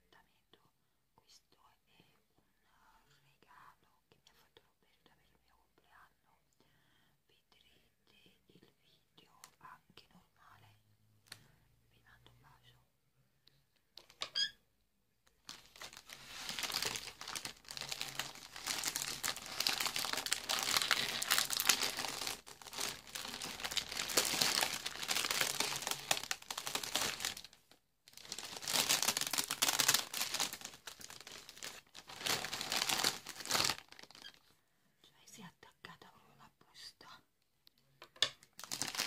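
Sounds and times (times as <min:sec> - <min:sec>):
plastic packaging crinkling: 0:15.4 - 0:34.4, 0:38.5 - 0:39.0.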